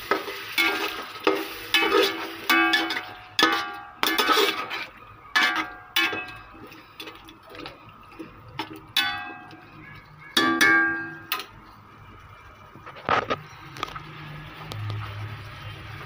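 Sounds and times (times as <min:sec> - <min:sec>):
metal spoon clanging on pot: 0:00.1 - 0:11.6
spoon scraping pot: 0:00.1 - 0:11.6.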